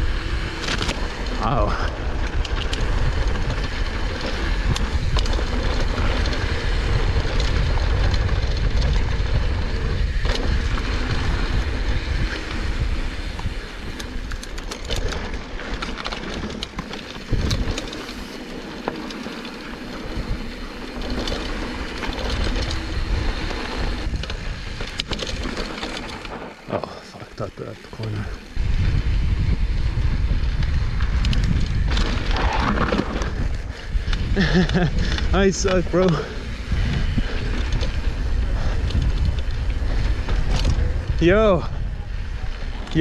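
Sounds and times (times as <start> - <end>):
wind on microphone: 0.0 - 14.4, 17.1 - 18.3, 27.9 - 43.0
bike rattling and clicking: 0.0 - 43.0
bike tyres rumbling on dirt: 0.0 - 43.0.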